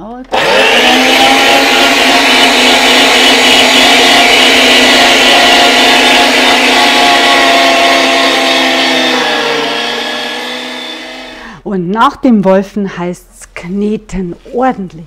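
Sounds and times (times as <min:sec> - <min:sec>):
electric meat grinder whining: 0:00.3 - 0:11.5.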